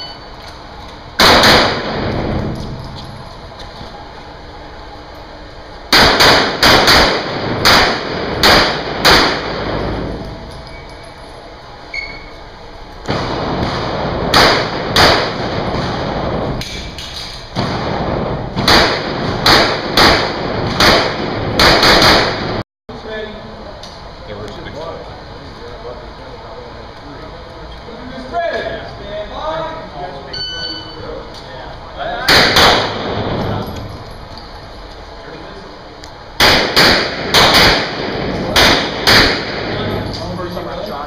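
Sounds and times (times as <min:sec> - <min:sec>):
pistol shots echoing indoors: 0:01.2 - 0:02.8, 0:05.9 - 0:10.3, 0:13.0 - 0:16.8, 0:17.6 - 0:22.6, 0:32.2 - 0:33.7, 0:36.4 - 0:40.0.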